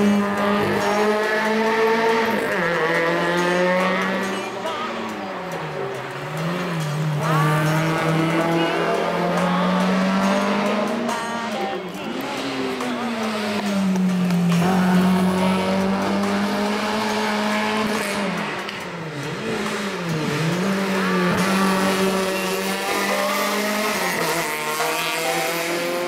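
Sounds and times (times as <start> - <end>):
rally car engines revving: 0.0 - 26.0.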